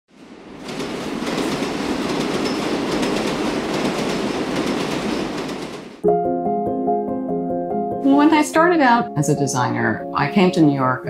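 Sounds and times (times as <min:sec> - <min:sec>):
subway train rumbling on track: 0:00.1 - 0:06.0.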